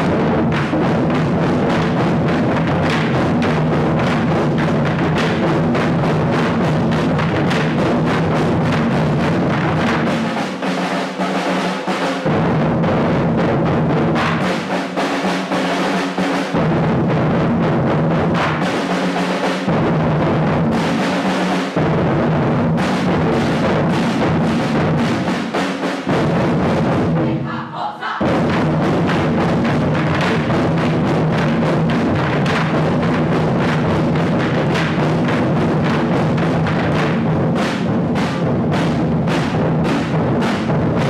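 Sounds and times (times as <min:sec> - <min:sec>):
higher drums: 0:00.0 - 0:41.0
large drums ensemble: 0:00.0 - 0:41.0.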